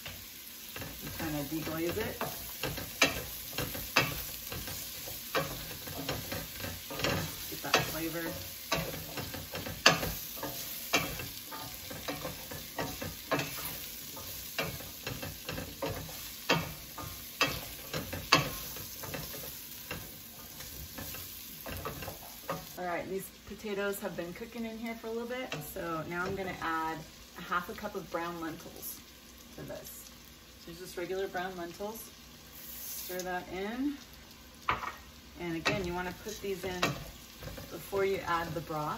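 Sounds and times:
wooden spoon scraping a pot: 0:00.0 - 0:22.8
food sizzling in oil: 0:00.0 - 0:38.9.

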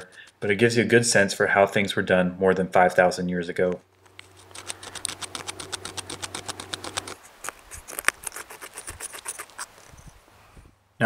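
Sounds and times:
stone tool scraping wood: 0:04.1 - 0:10.1.

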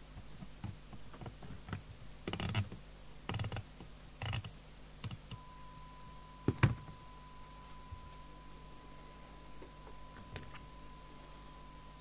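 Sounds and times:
steady high tone: 0:05.4 - 0:12.0.

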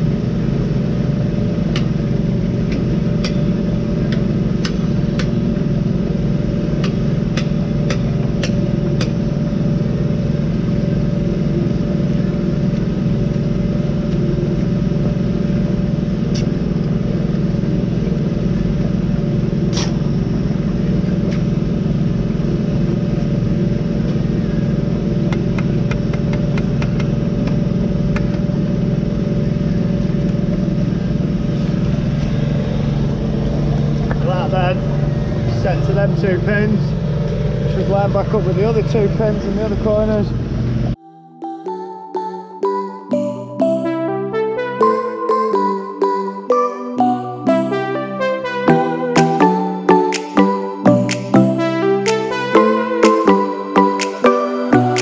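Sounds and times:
engine droning: 0:00.0 - 0:41.0.

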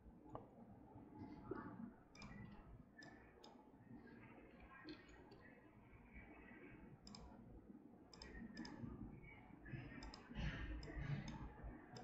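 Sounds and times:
low room noise: 0:00.0 - 0:12.0
faint computer mouse clicks: 0:02.1 - 0:03.6, 0:07.0 - 0:07.4, 0:08.1 - 0:08.8, 0:09.8 - 0:12.0.

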